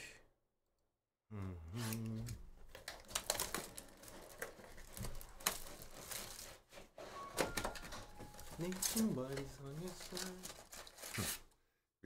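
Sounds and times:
plastic shrink-wrap crinkling and tearing: 2.6s - 11.5s.

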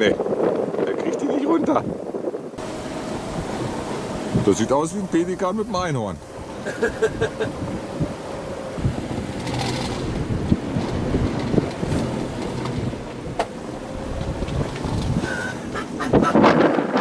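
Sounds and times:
faint wind whistle: 0.0s - 6.6s
choppy sea: 0.0s - 17.0s
wind buffeting microphone: 0.0s - 17.0s.

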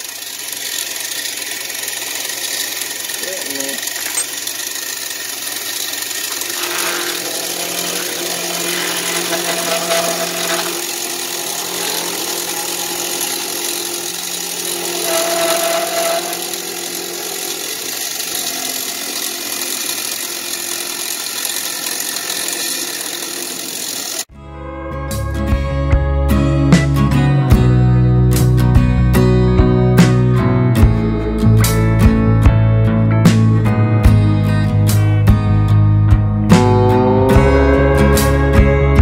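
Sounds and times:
end mill cutting metal: 0.0s - 24.3s
milling machine spindle running: 0.0s - 24.3s.

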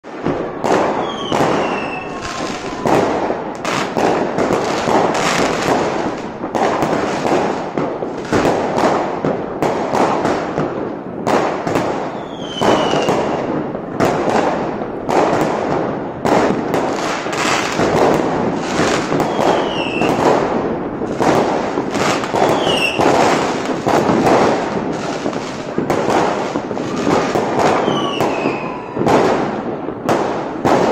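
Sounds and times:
fireworks bangs and crackling: 0.0s - 30.9s
firework whistles falling in pitch: 0.6s - 5.4s, 12.0s - 13.5s, 19.1s - 20.2s, 22.0s - 23.2s, 26.8s - 29.3s.

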